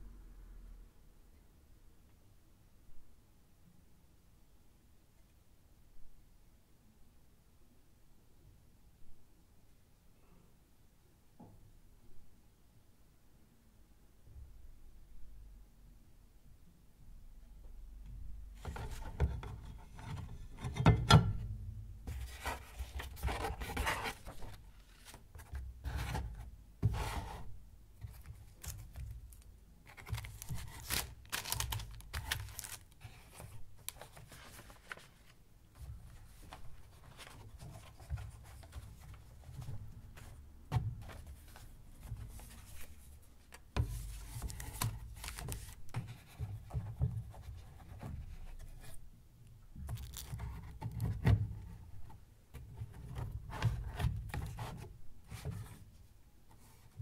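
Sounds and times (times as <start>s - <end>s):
paper sliding and rustling: 22.1s - 27.5s, 29.9s - 40.4s, 43.8s - 45.9s.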